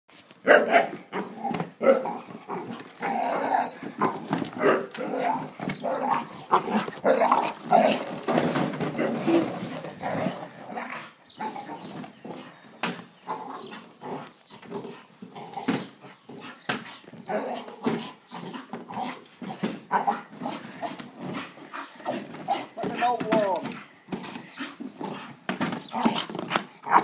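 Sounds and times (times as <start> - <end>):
dog growling and barking: 0.5 - 12.4, 17.3 - 22.8, 25.9 - 27.0.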